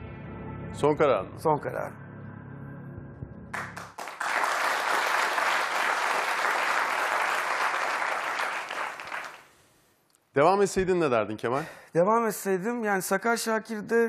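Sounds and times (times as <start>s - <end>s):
audience applauding: 3.6s - 9.5s.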